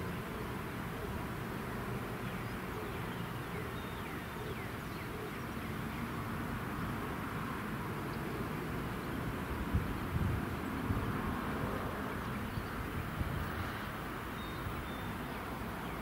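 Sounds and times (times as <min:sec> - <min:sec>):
bird chirps: 0:14.4 - 0:16.0.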